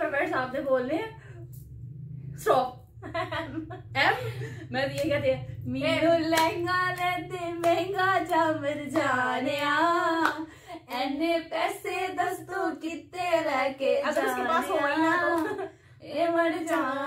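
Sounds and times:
woman singing unaccompanied: 4.8 - 17.0
hand claps: 6.3 - 8.4, 9.0 - 11.1, 15.2 - 15.6, 16.7 - 17.0.

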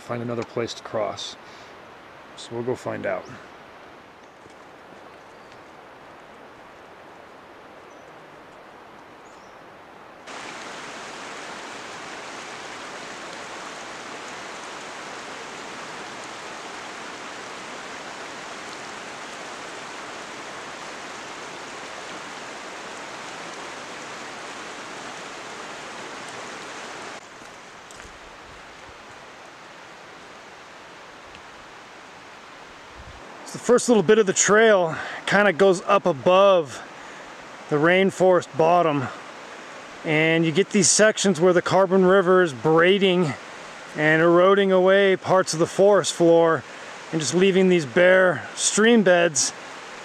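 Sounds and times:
faint outdoor hiss: 0.0 - 50.0
shallow stream over cobbles: 10.2 - 32.6, 33.2 - 50.0.

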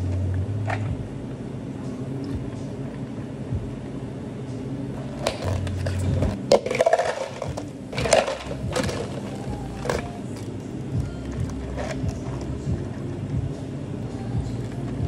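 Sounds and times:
steady low hum: 0.0 - 15.0
ice cubes rattling: 5.0 - 10.6
cups and pitcher clinking: 5.0 - 13.1.

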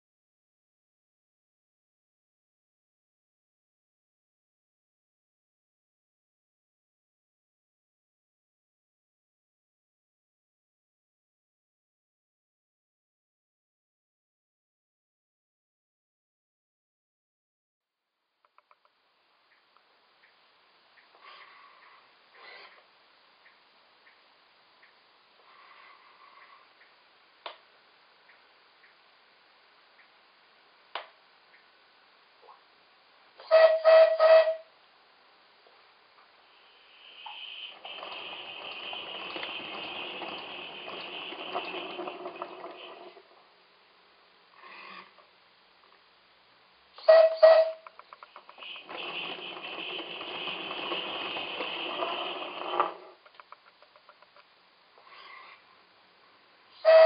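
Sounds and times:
locomotive whistle toots: 33.4 - 34.7, 47.0 - 47.9, 48.6 - 52.9, 56.8 - 57.0
model locomotive exhaust hiss: 36.4 - 43.5, 47.0 - 53.2.

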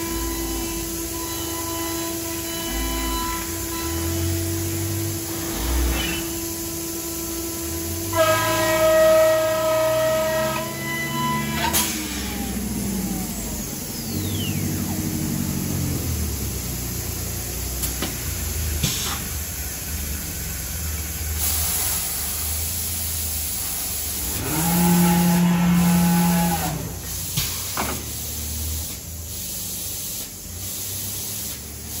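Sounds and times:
machine hum: 0.0 - 27.4
loud rising whine: 2.5 - 18.8.

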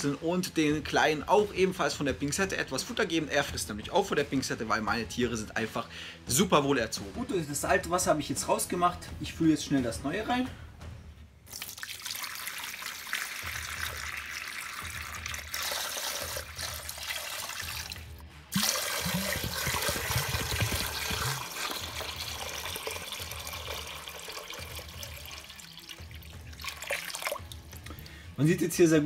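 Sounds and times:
water pouring into plastic dish: 11.5 - 28.0.

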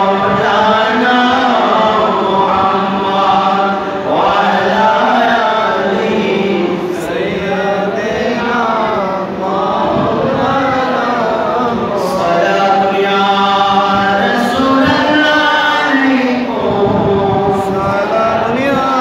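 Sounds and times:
man chanting into a microphone: 0.0 - 19.0.

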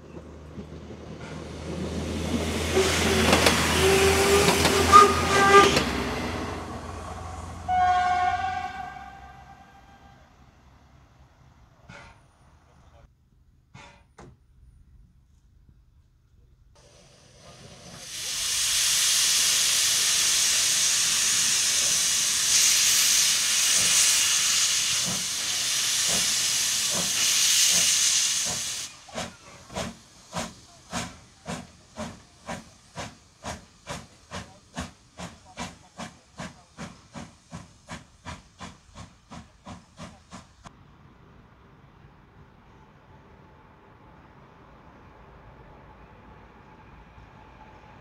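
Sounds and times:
loud steam hiss: 16.8 - 40.7
steam locomotive exhaust chuffs: 16.8 - 40.7.

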